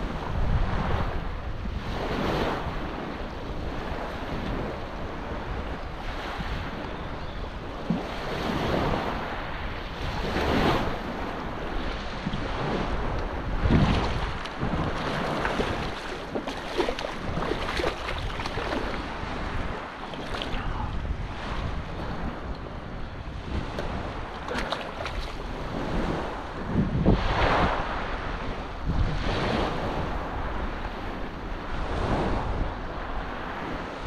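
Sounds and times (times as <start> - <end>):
wind buffeting microphone: 0.0 - 34.0
small waves washing: 7.6 - 34.0.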